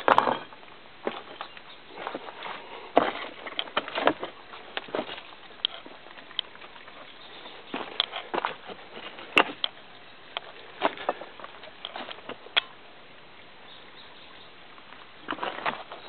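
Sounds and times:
footsteps crunching on leaves and stones: 0:00.0 - 0:12.5.

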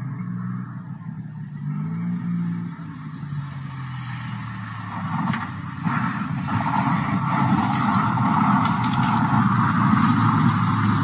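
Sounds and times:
rushing air noise: 0:04.7 - 0:11.0.

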